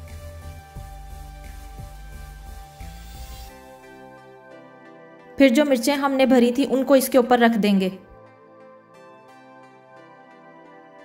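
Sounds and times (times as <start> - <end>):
quiet background music: 0.0 - 11.0.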